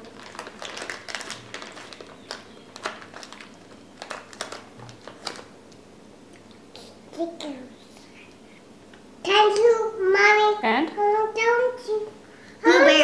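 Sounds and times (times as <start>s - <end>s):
plastic packet crinkling: 0.0s - 5.6s.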